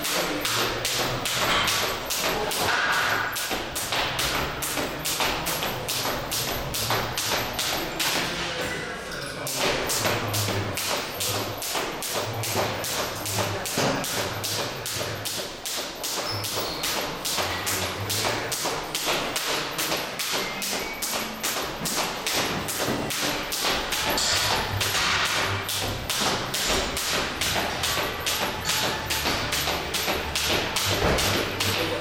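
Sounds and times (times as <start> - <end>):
jump rope slapping floor: 0.0 - 8.5, 9.5 - 32.0.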